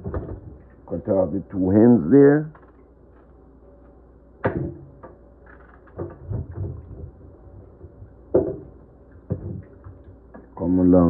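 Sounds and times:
knocks and scrapes: 5.5s - 10.2s.

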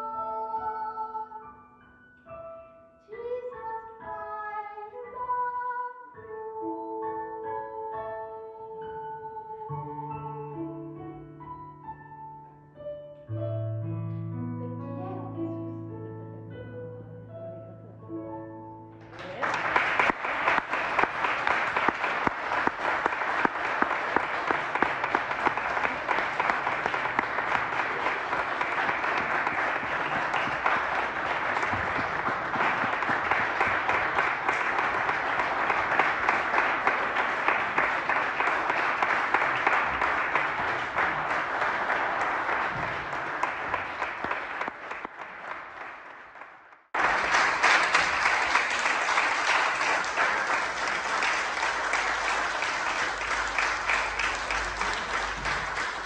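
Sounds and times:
music: 0.0s - 44.6s, 47.0s - 56.0s
audience applauding: 19.0s - 56.0s.

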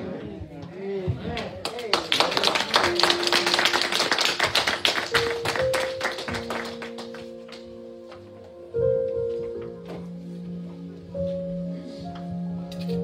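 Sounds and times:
congregation clapping: 1.4s - 7.8s.

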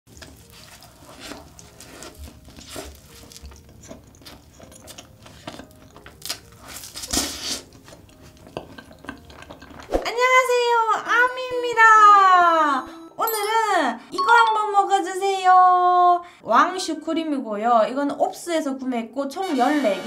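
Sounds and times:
chewing cream puff: 0.1s - 9.9s.

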